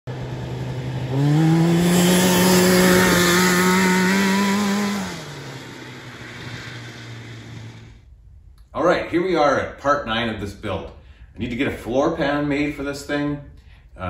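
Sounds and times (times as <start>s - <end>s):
two-stroke engine revving: 0.1s - 8.0s.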